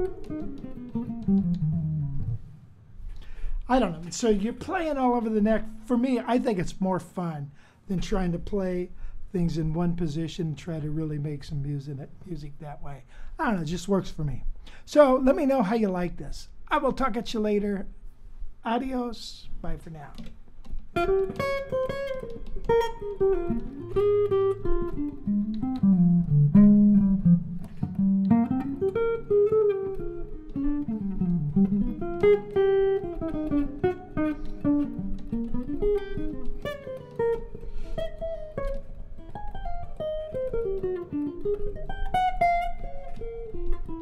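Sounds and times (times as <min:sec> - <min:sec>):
guitar plucked notes: 0:00.0 - 0:06.7, 0:19.6 - 0:44.0.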